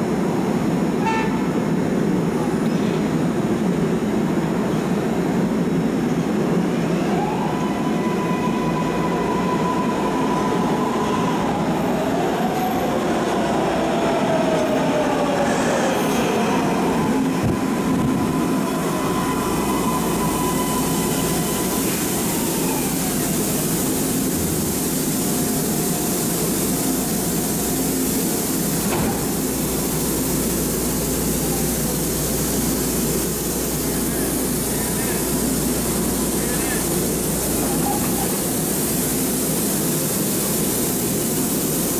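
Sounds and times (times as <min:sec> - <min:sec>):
high whine of train: 0:00.0 - 0:41.9
train hum and hiss: 0:00.0 - 0:41.9
train braking to a stop: 0:06.0 - 0:41.9.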